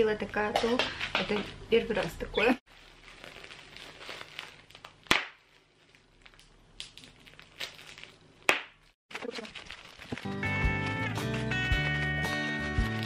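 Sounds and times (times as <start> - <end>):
bubble wrap crinkling: 2.7 - 13.0
bubble wrap popping: 2.7 - 13.0.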